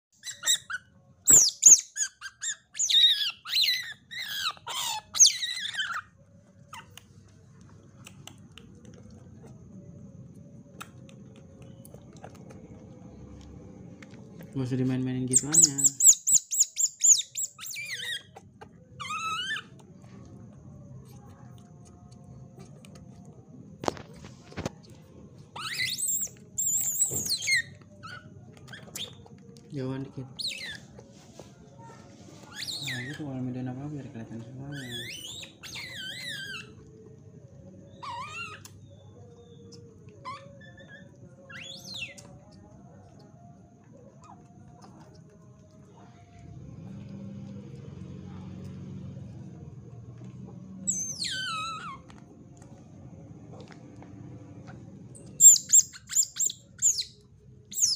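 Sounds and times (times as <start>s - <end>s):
otter squeaking and chirping: 0.1s - 7.1s, 14.4s - 20.1s, 25.5s - 43.0s, 44.1s - 45.0s, 50.5s - 52.3s, 54.6s - 57.9s.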